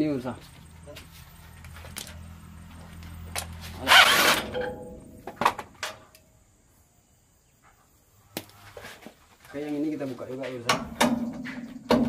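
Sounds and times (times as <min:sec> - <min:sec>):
metal tool scraping: 0:03.6 - 0:05.2
sharp metallic knocks: 0:04.0 - 0:06.0, 0:10.7 - 0:12.0.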